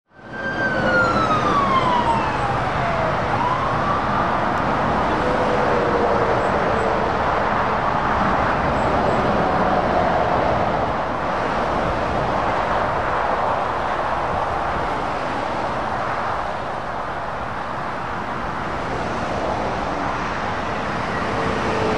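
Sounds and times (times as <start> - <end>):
emergency vehicle siren wailing: 0.1 - 7.2, 20.6 - 21.9
road traffic passing: 0.1 - 21.9.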